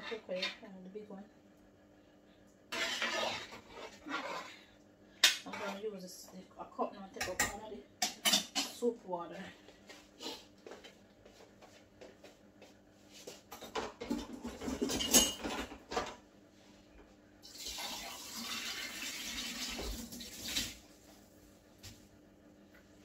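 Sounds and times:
cup and dishes clattering: 13.6s - 16.1s
kitchen tap running: 17.4s - 20.9s.

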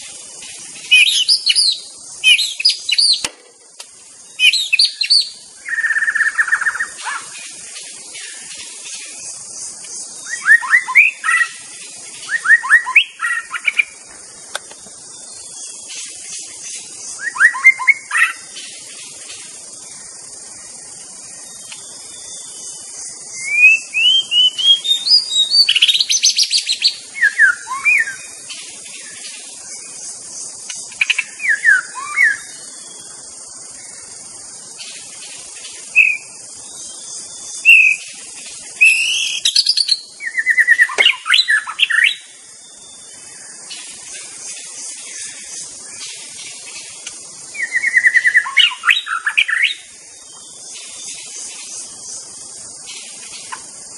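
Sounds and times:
bird singing whistles and trills: 0.0s - 3.3s, 4.0s - 53.9s
steady high-pitched hiss: 0.0s - 53.9s.

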